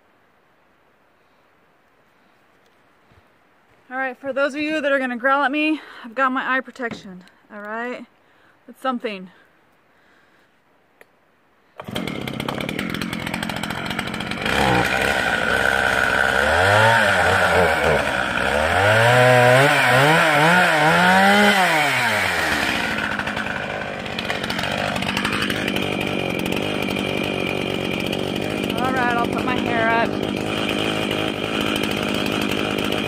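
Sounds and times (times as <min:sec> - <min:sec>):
chainsaw starting and revving: 0:11.8 - 0:33.0.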